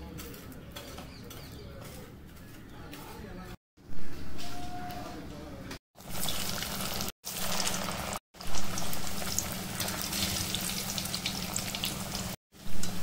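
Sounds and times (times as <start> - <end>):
food deep-frying in sizzling oil: 6.0 - 13.0.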